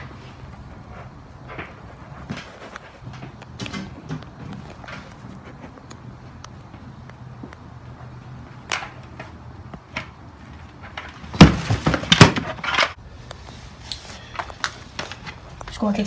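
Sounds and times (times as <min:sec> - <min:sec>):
loud thumps: 0:11.3 - 0:12.6.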